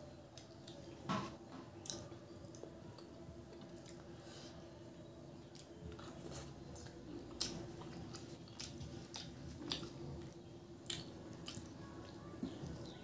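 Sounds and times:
person chewing food: 1.8 - 4.6, 5.4 - 13.0.

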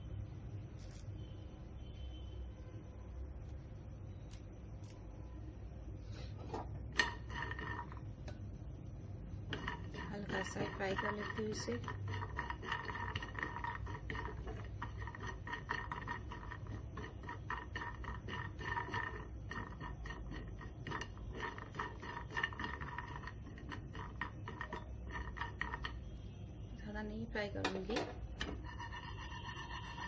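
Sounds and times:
metal spoon scraping frying pan: 6.5 - 8.1, 9.3 - 26.2, 27.4 - 30.0.

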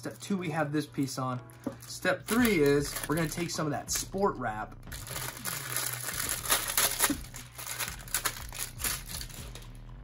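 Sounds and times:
plastic packaging crinkling: 1.7 - 3.4, 4.9 - 9.8.

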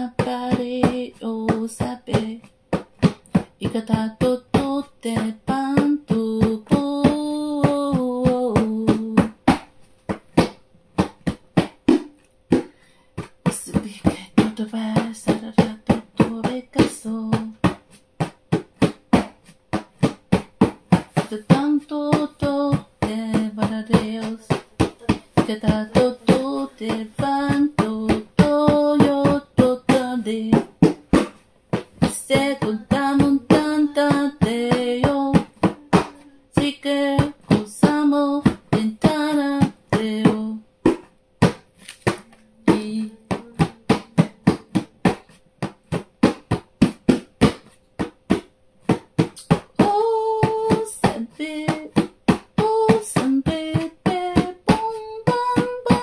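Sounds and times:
person singing wordlessly: 0.0 - 2.5, 3.6 - 9.4, 13.5 - 17.6, 21.2 - 30.7, 32.0 - 40.6, 42.2 - 44.8, 49.8 - 52.0, 52.6 - 56.0
fast sharp tapping beat: 0.0 - 56.0.

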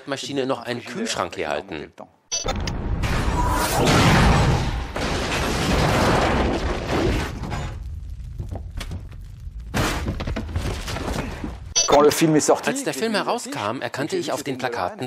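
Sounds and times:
metal crashing and tumbling: 4.8 - 8.0.

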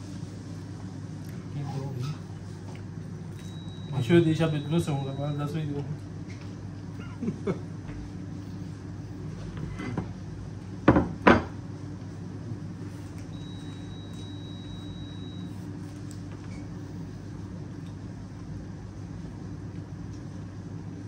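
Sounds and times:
steady low hum: 0.0 - 21.0
plate knocking on wooden table: 10.8 - 11.6.

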